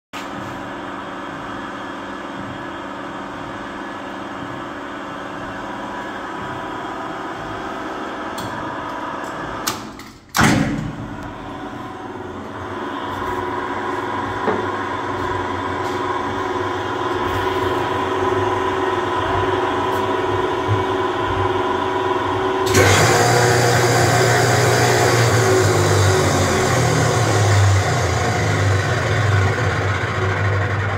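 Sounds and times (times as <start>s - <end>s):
mixer grinder motor humming: 11.2s - 30.9s.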